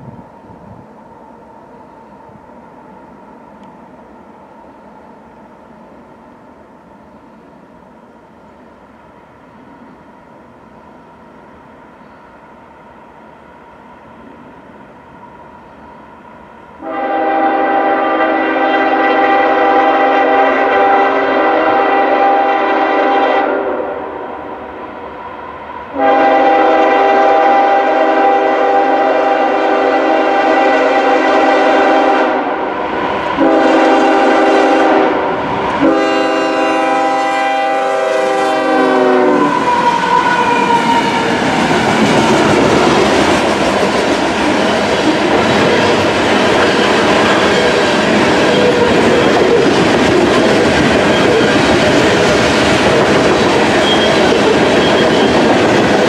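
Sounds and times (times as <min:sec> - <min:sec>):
locomotive air horn blasts: 0:16.8 - 0:24.2, 0:25.9 - 0:32.6, 0:33.4 - 0:41.4
locomotives running: 0:39.4 - 0:56.0
hopper cars clacking over rails: 0:39.6 - 0:56.0.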